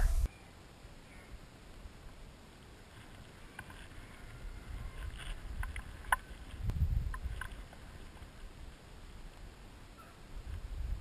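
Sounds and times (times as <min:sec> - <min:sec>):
wind rumbling on microphone: 0:03.3 - 0:09.6, 0:10.2 - 0:11.0.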